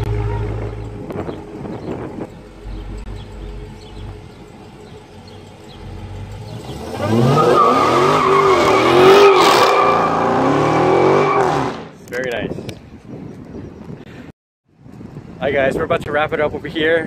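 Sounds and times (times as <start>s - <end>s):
car engine revving: 0.0s - 11.8s.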